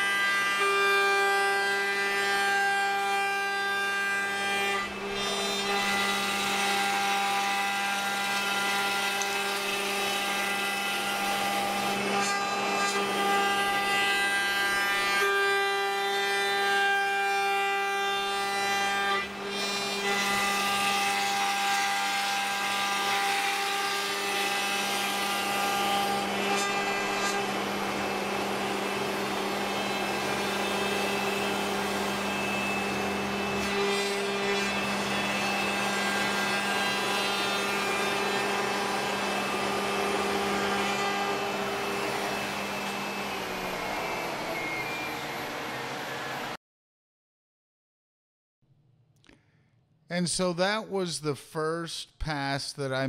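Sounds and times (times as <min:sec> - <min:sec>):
router spindle whine: 0:24.2 - 0:46.6.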